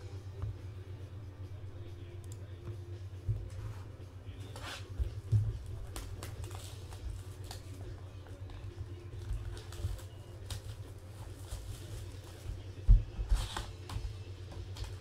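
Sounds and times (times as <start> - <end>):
cardboard rustling and scraping: 3.4 - 7.9, 9.2 - 15.0.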